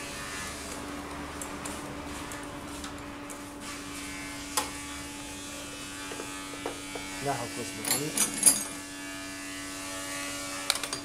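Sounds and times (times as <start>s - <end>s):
steady background hum: 0.0s - 11.0s.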